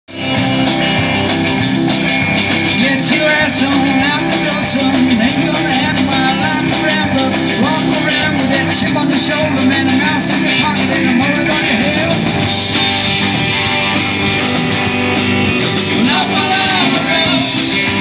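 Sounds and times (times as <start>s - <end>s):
live band through loudspeakers: 0.1s - 18.0s.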